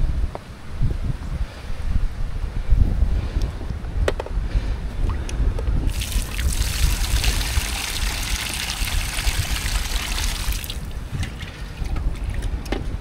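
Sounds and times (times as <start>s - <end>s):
wind rumble on microphone: 0.0s - 13.0s
water spraying onto sand: 5.9s - 10.9s.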